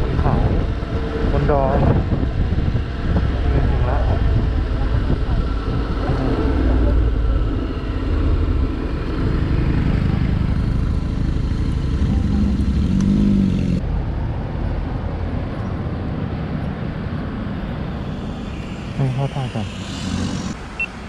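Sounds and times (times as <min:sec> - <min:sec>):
wind and road noise: 0:00.0 - 0:21.0
scooter engine running: 0:08.0 - 0:13.8.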